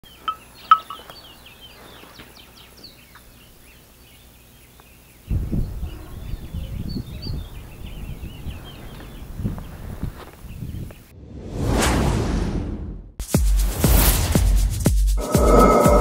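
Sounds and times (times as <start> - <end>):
sharp bird calls: 0.0 - 9.7
birds chirping and singing: 0.0 - 11.1
uneven low rumbling: 5.3 - 10.9.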